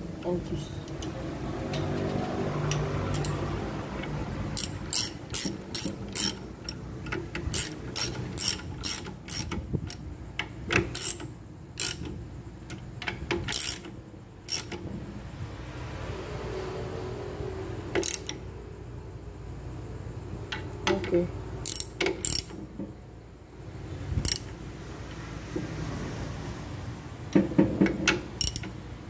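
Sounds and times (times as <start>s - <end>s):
ratchet wrench clicking: 2.6s - 14.8s, 18.0s - 18.4s, 21.6s - 22.6s, 24.2s - 24.6s, 28.4s - 28.8s.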